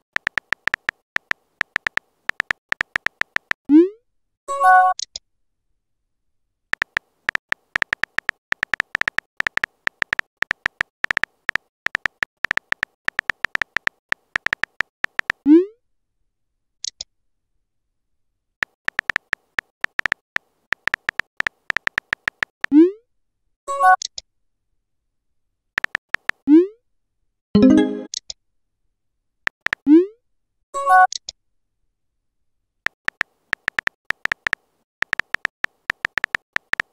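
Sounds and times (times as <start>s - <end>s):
phone keyboard tap clicks: 0.2s - 3.6s, 6.8s - 15.4s, 18.6s - 20.2s, 20.8s - 22.5s, 25.8s - 26.4s, 33.0s - 36.9s
incoming message chime: 27.6s - 28.1s
rising pop of message sent: 27.6s - 28.1s.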